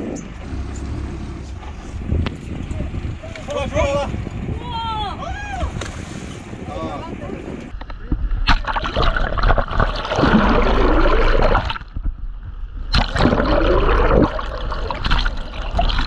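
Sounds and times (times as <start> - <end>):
seawater surging and gurgling: 0.0 - 16.0
bubbly water rushes: 8.4 - 12.0, 12.8 - 16.0.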